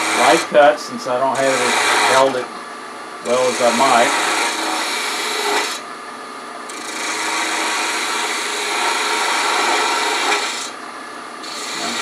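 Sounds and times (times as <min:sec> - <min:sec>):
lathe gouge shaving wood: 0:00.0 - 0:00.6, 0:01.4 - 0:02.4, 0:03.2 - 0:05.8, 0:06.7 - 0:10.7, 0:11.4 - 0:12.0.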